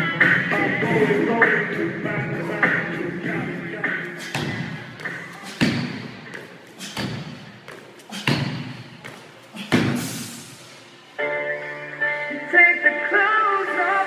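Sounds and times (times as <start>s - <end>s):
feet thudding on box and floor: 4.3s - 10.2s.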